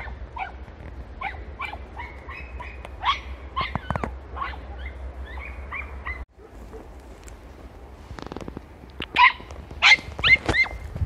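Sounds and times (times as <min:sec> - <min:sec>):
puppies yelping: 0:01.2 - 0:06.3.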